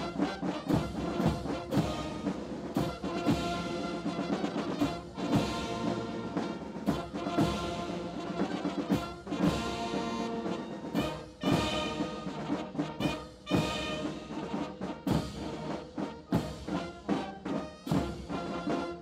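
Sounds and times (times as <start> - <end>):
brass chords: 0.0 - 19.0
snare drums: 0.0 - 19.0.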